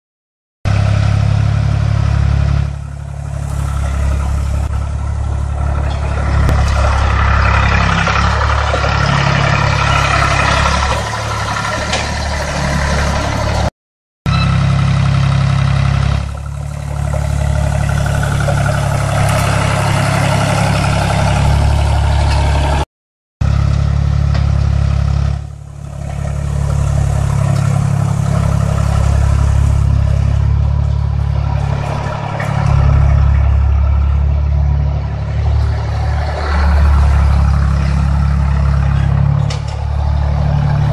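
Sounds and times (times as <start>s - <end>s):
diesel tractor engine under load: 0.7s - 13.7s, 14.3s - 40.9s.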